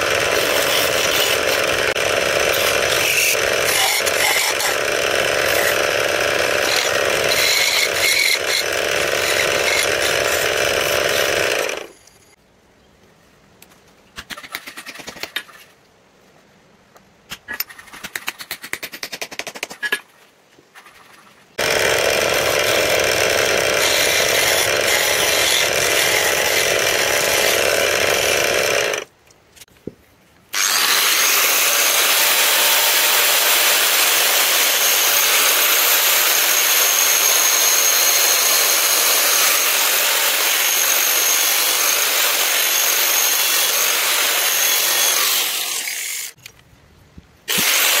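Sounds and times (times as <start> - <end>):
power tool grinding steel: 0.0 - 12.0, 21.6 - 29.1, 30.6 - 46.4, 47.5 - 48.0.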